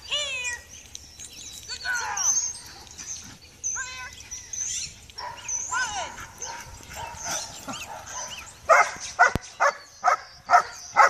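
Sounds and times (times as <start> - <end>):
faint bird chirps: 0.1 - 11.0
dog barking: 6.4 - 11.0.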